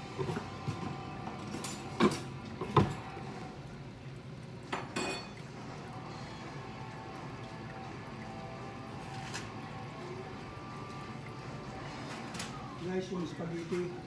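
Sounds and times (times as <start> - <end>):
metal pots clanking: 4.7 - 5.5.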